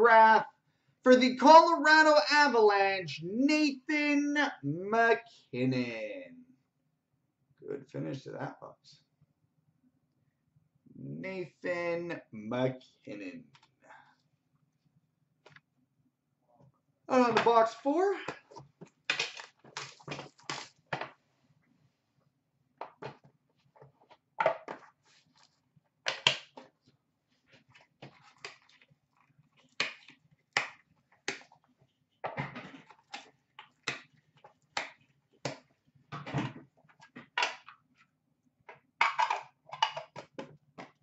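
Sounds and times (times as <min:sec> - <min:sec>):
packaging rustling and crinkling: 0:18.8 - 0:20.9.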